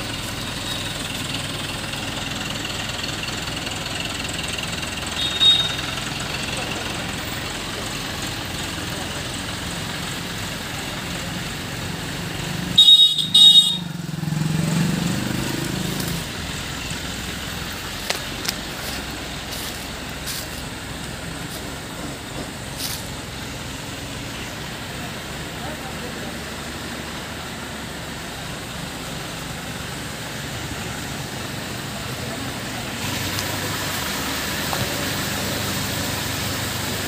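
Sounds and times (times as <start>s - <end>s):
diesel engine running: 0.0s - 37.0s
engine revving: 0.0s - 37.0s
short horn blasts: 5.1s - 6.0s, 12.7s - 14.0s.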